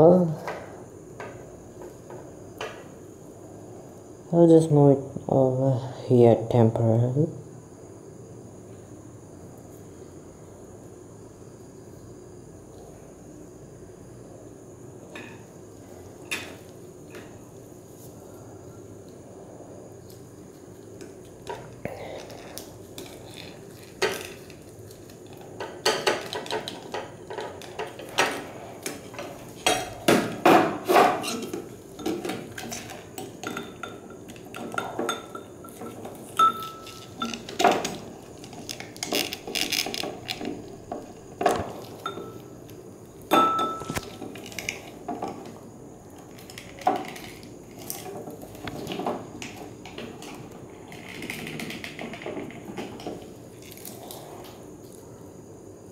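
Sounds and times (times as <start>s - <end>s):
glassy pings: 36.4s - 37.4s.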